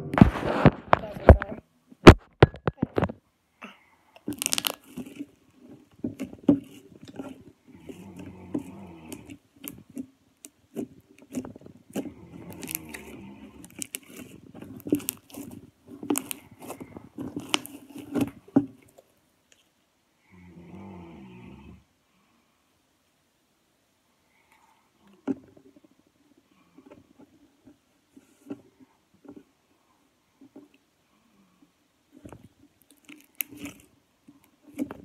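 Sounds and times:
slime crackling and popping: 4.2 - 19.6, 32.8 - 35.0.

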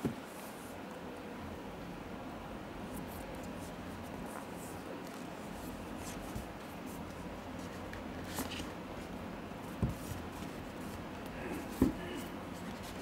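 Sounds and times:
steady low hum: 0.0 - 13.0
cardboard rustling and scraping: 3.1 - 13.0.

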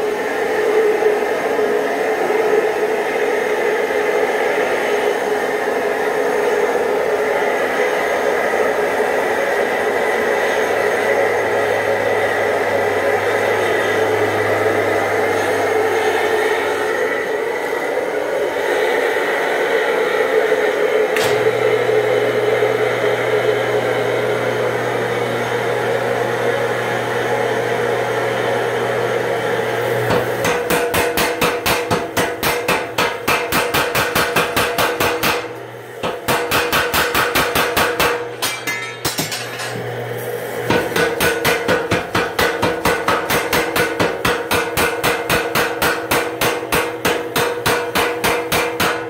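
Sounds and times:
steady hum: 0.0 - 49.0
power hammer striking hot steel: 21.1 - 21.7, 30.0 - 40.0, 40.6 - 49.0.

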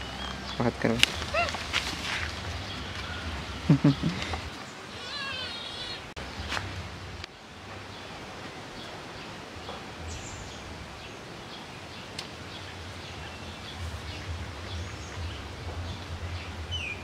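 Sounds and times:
outdoor background hiss: 0.0 - 17.0
small birds chirping: 0.0 - 17.0
low rumble: 12.8 - 17.0.

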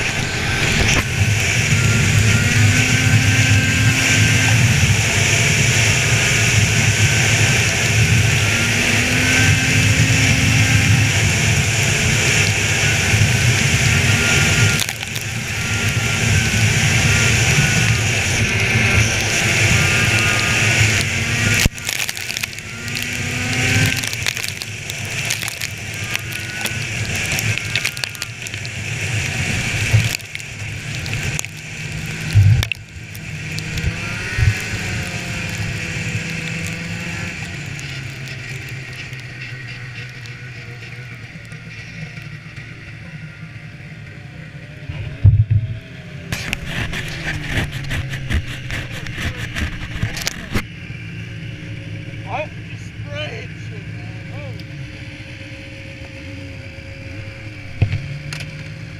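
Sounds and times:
rushing noise: 0.0 - 41.3
snowmobile engine: 0.0 - 58.9.

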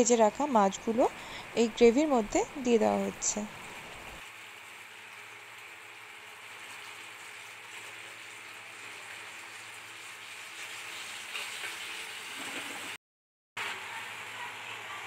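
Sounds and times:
gravy sizzling in a frying pan: 1.7 - 13.0.

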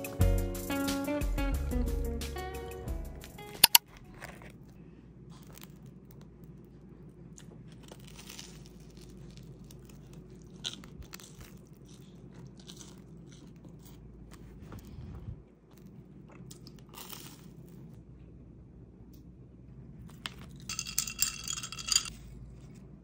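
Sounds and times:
low steady hum: 1.3 - 23.0
sharp clicks: 3.5 - 3.8
toasted sandwich crunching: 3.7 - 14.6, 15.7 - 18.0.

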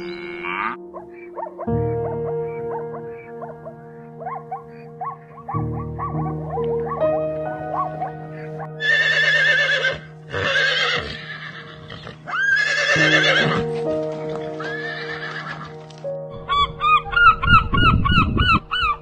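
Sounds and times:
background music: 0.0 - 19.0
horse neighing: 8.8 - 13.7, 14.6 - 15.7.

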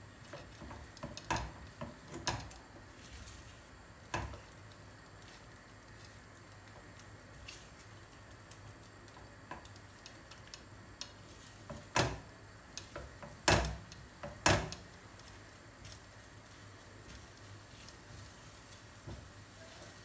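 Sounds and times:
spatula clicking in frying pan: 0.2 - 2.6, 8.1 - 15.0
spatula knocking against pan: 13.0 - 14.8.

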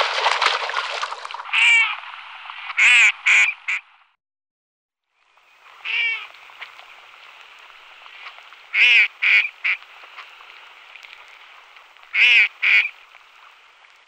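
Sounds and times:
ducks quacking: 1.5 - 2.0, 2.8 - 3.9, 5.8 - 6.4, 8.2 - 9.8, 12.1 - 13.0
dense crackling noise: 5.2 - 14.0.

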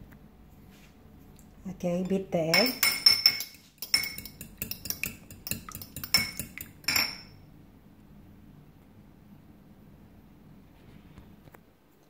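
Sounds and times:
fork clinking in ceramic bowl: 2.0 - 7.4.

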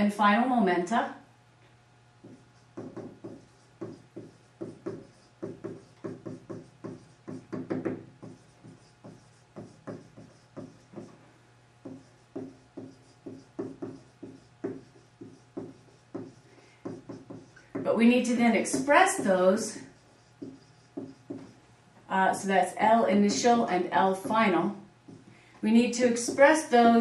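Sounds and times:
steady low hum: 0.0 - 27.0
marker squeaking on whiteboard: 2.2 - 11.2, 11.8 - 21.6.

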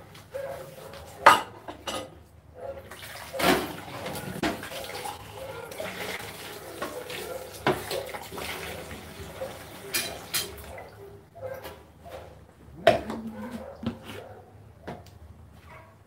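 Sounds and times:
dishes knocking and clinking: 1.2 - 2.2, 9.9 - 10.7, 12.8 - 13.3
water running from tap: 2.9 - 11.0.

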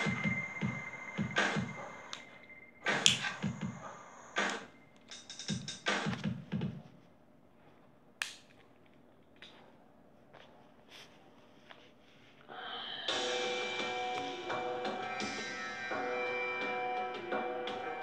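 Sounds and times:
electronic music with rhythmic pulses: 0.0 - 6.7, 13.1 - 18.0.

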